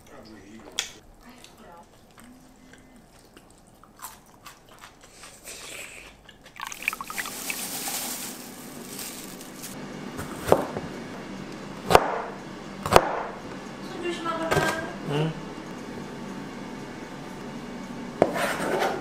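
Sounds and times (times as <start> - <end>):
chewing fried chicken: 1.1 - 7.7
sloshing dripping liquid effect: 6.5 - 7.8
knife chopping on plastic board: 10.4 - 10.8, 11.9 - 13.3.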